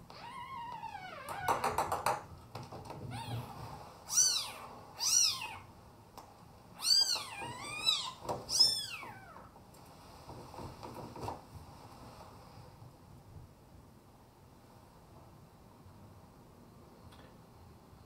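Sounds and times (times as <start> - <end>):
cat mewing: 3.1 - 5.7, 6.8 - 9.5.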